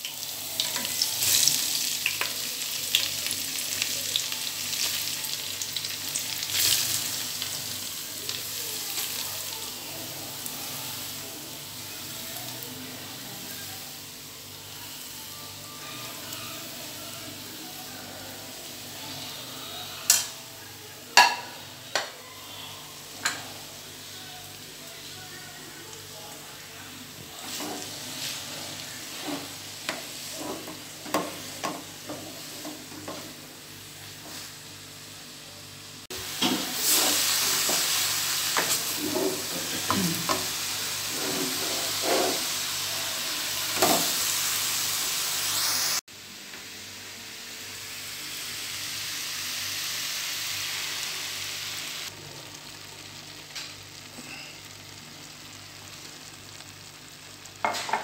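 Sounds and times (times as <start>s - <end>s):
carrots sizzling in a pot: 0.0s - 58.0s
wooden spatula scraping a pan: 27.4s - 33.2s, 41.0s - 42.6s.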